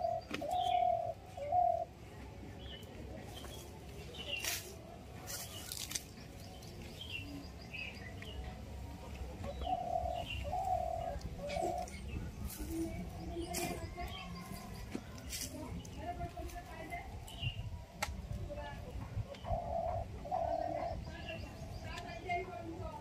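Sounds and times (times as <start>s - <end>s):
dove cooing: 0.0s - 2.2s, 9.2s - 14.7s, 19.1s - 21.8s
small birds chirping: 0.0s - 23.0s.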